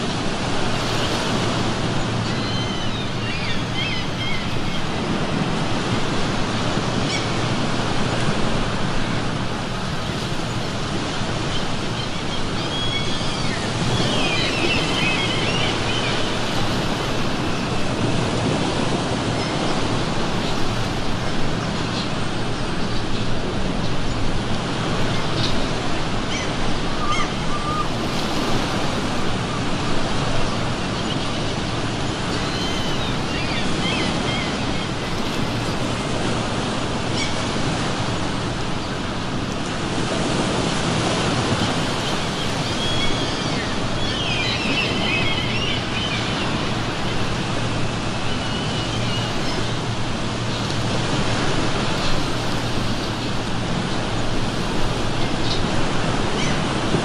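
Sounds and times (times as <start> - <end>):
ocean surf on shore: 0.0 - 57.0
seagulls calling: 0.1 - 6.2, 10.5 - 23.2, 24.8 - 28.8, 29.4 - 38.2, 40.3 - 52.4, 55.0 - 56.9.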